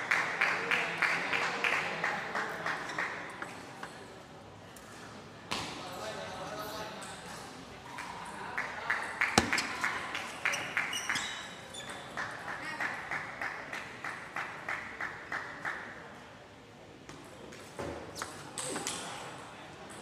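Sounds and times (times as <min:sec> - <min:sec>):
ball bouncing on table: 0:09.4 - 0:09.8.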